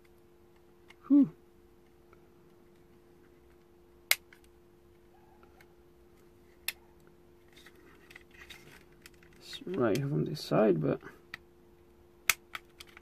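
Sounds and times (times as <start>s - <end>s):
sharp plastic clicks: 12.2s - 13.0s.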